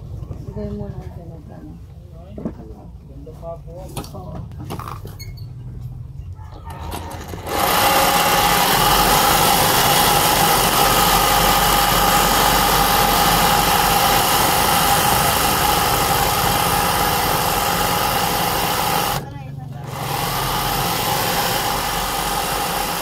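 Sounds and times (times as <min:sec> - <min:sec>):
sewing machine running: 0:06.7 - 0:23.0.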